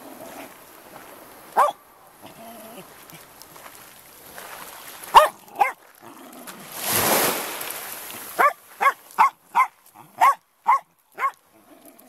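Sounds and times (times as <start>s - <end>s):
dog barking: 1.6s - 1.8s, 5.1s - 5.8s, 8.4s - 11.4s
waves rushing: 6.4s - 9.7s.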